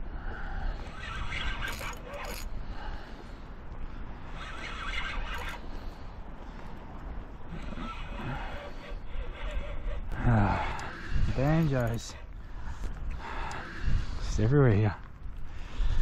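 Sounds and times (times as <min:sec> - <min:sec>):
fishing reel gears rasping: 0:00.8 - 0:02.5, 0:04.3 - 0:05.6
wind on microphone: 0:12.2 - 0:16.0.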